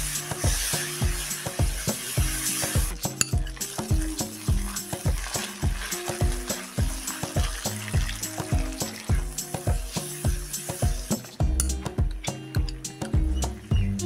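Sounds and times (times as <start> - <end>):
spatula stirring: 0.0 - 11.4
food sizzling in a wok: 0.0 - 11.8
background music with beat: 0.0 - 14.0.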